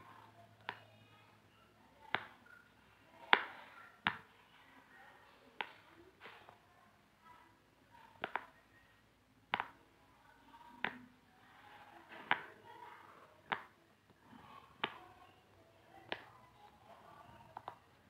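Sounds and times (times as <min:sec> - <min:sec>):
pop-it fidget toy popping: 0:08.2 - 0:08.6, 0:09.5 - 0:09.8, 0:13.5 - 0:13.8.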